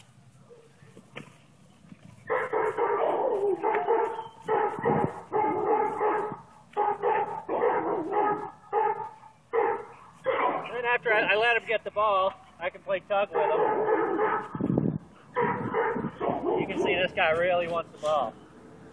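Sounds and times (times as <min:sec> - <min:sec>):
young dog barking: 0:02.3 - 0:10.8, 0:13.3 - 0:14.6, 0:15.2 - 0:17.1.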